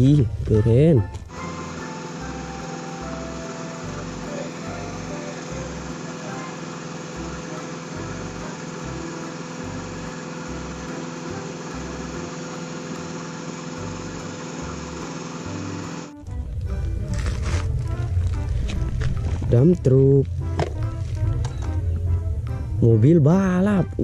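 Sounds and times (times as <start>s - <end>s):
diesel engine running: 0.0s - 24.0s
loud low rumble: 16.2s - 23.6s.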